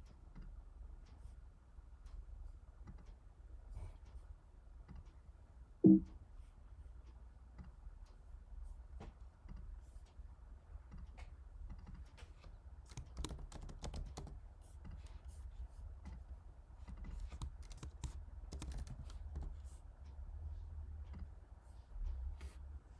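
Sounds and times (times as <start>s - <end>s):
steady low hum: 0.0s - 13.2s
typing on computer keyboard: 11.7s - 15.2s, 16.8s - 19.8s.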